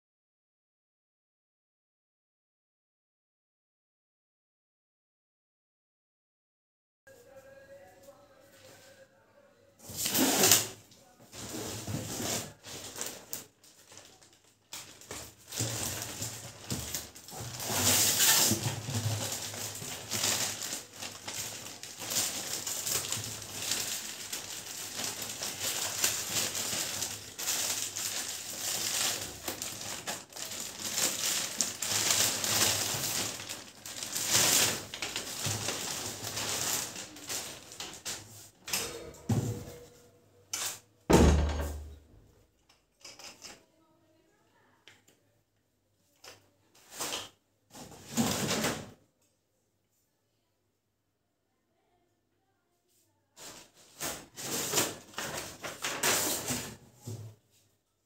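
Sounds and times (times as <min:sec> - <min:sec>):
plastic wrapping crinkling: 0:09.9 - 0:38.3, 0:53.4 - 0:56.8.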